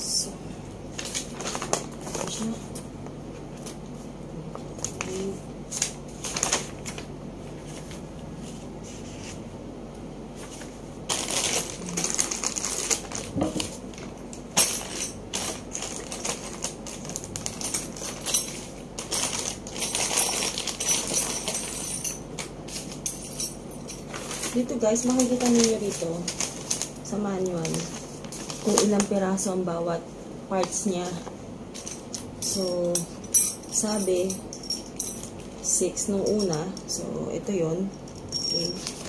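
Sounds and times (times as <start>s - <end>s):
plastic bags rustling: 11.1s - 14.1s, 14.8s - 29.2s, 38.1s - 39.0s
metal screws clinking: 17.7s - 22.2s, 31.8s - 35.3s, 36.2s - 36.7s, 38.1s - 38.9s.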